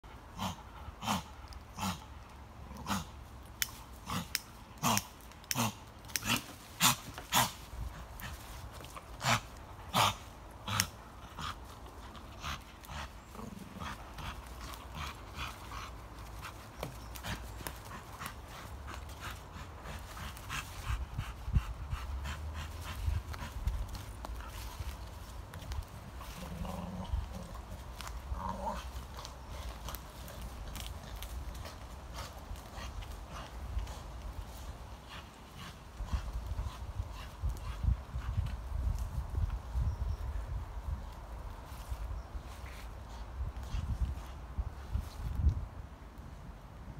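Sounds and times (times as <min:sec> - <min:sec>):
dog snorting and grunting: 0:00.4 - 0:02.1, 0:02.7 - 0:03.2.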